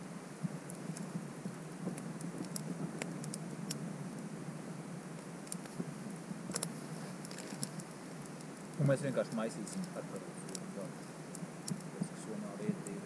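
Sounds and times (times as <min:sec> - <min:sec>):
campfire crackling: 0:00.0 - 0:13.0
fire snaps and pops: 0:00.0 - 0:13.0
low hiss: 0:00.0 - 0:13.0.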